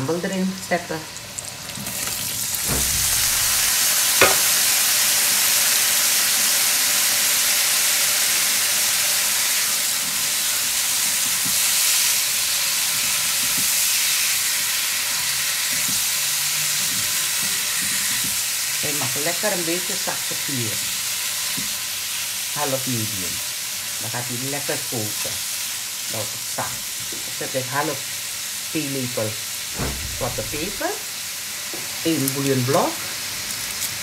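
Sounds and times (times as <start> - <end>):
food sizzling in hot oil: 0.5 - 34.0
sharp knock: 2.6 - 4.6, 29.8 - 30.8.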